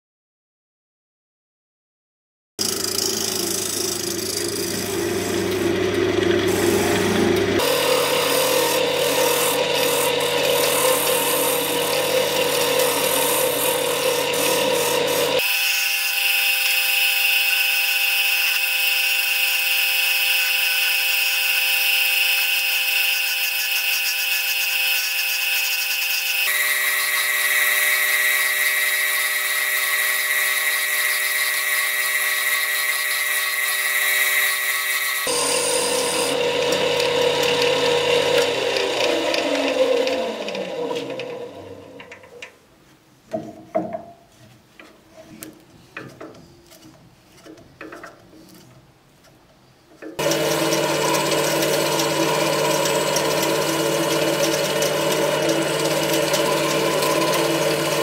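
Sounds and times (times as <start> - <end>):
chisel cutting wood: 2.6 - 41.4, 50.2 - 58.0
wood lathe whining: 2.6 - 42.3, 50.2 - 58.0.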